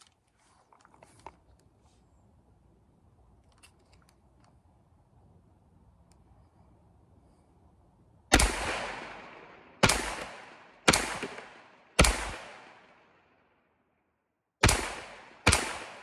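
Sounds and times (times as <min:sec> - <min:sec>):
pistol shots with echo: 0:08.3 - 0:13.2, 0:14.6 - 0:16.0.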